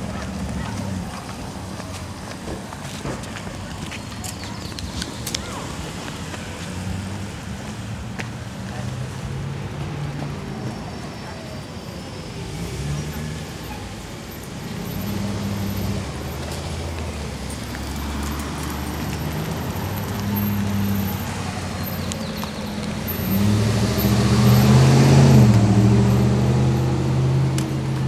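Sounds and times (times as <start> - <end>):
road traffic: 0.0 - 28.0
vehicle passing close: 14.5 - 28.0.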